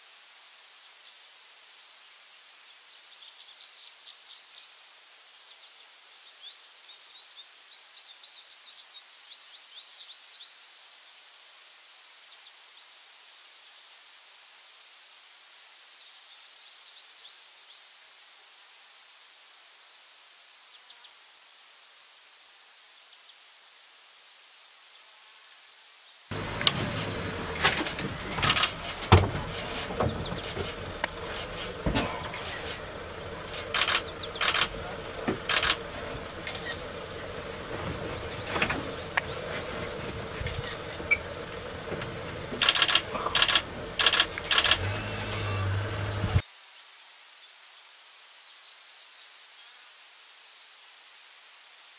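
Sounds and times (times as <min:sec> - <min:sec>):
faint chirps: 0:26.3 - 0:46.4
sharp knocks and thumps: 0:26.3 - 0:46.4.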